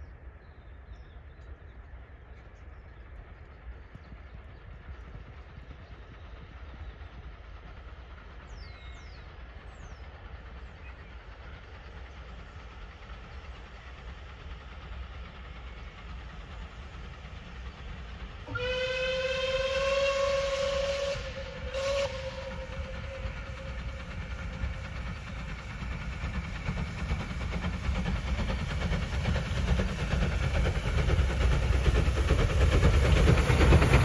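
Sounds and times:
steam locomotive whistle: 18.4s - 24.0s.

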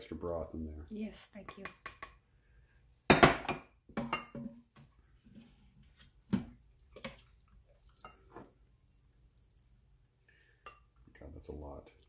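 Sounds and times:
stew slopping: 4.9s - 11.0s.

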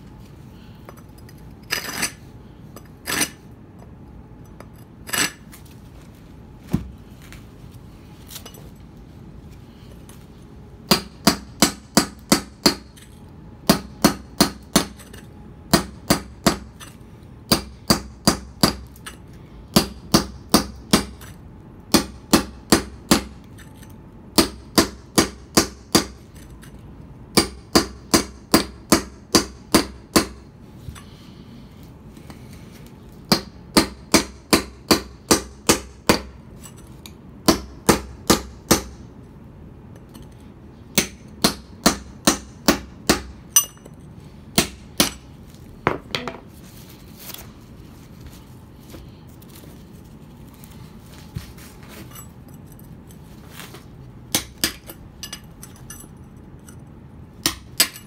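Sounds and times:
hammer striking chisel on stone: 57.4s - 58.0s.

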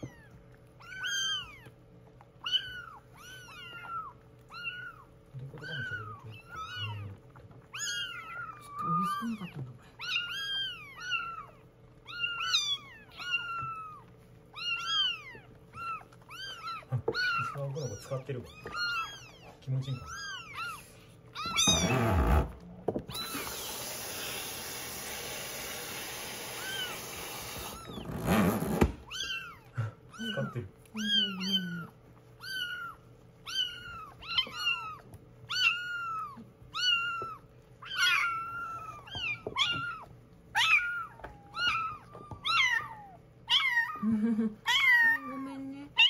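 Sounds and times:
kittens mewing: 0.0s - 46.0s
running water splashing: 23.1s - 27.9s.

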